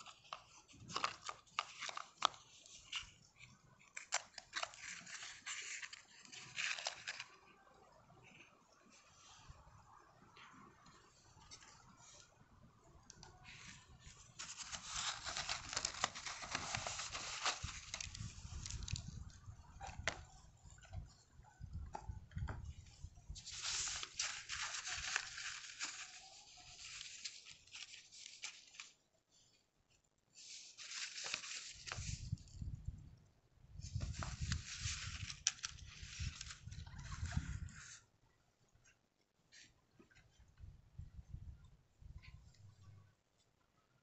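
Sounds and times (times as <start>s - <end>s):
paper and cardboard rustling: 0.0s - 7.5s, 13.3s - 19.2s, 23.3s - 29.5s, 30.3s - 32.6s, 33.8s - 38.0s.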